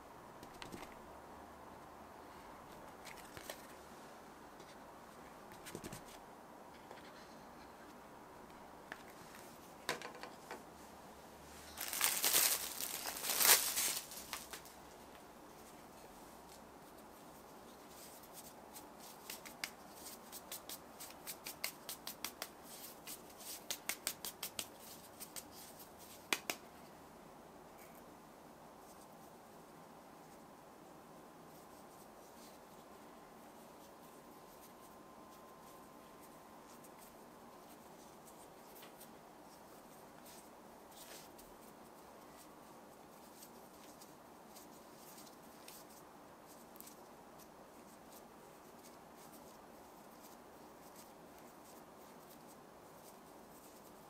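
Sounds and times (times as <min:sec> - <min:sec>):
hands clicking and tapping dough: 0:19.0 - 0:26.7.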